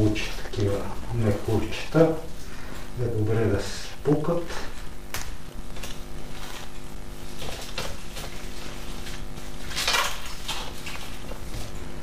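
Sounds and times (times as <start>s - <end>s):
low steady hum: 0.0s - 12.0s
cling film crinkling: 4.9s - 11.7s.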